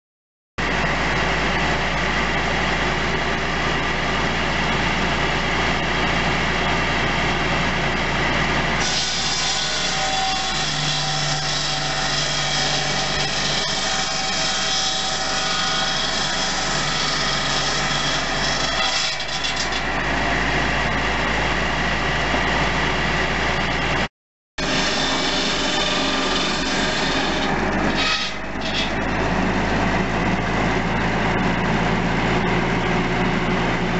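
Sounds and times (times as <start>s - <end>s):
tractor engine running: 0.6s - 8.8s, 19.8s - 24.1s, 27.2s - 33.9s
circular saw cutting wood: 0.6s - 33.9s.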